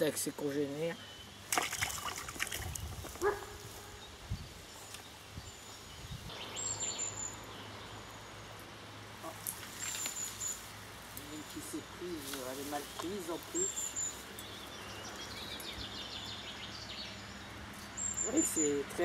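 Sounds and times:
rustling of net strings and branches: 1.2s - 7.4s, 8.6s - 16.5s.

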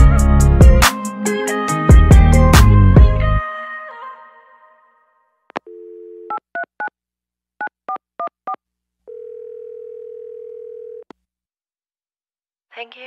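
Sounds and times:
telephone dial tone: 5.6s - 6.7s, 9.1s - 11.1s
telephone ringback tone: 9.1s - 11.0s.

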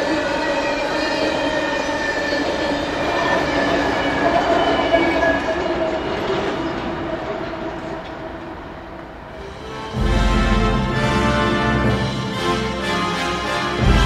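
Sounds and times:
train cars rolling on rails: 0.0s - 10.0s.

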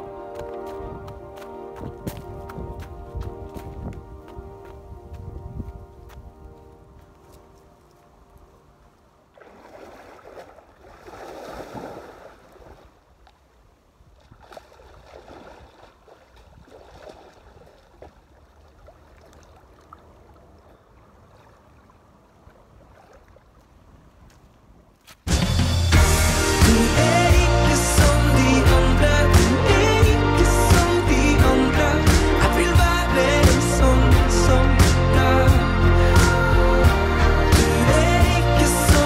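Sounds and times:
person splashing into water: 9.3s - 13.0s, 14.2s - 20.0s
swimming splashes: 9.3s - 13.5s, 14.2s - 24.0s
low wash of water: 9.3s - 24.2s.

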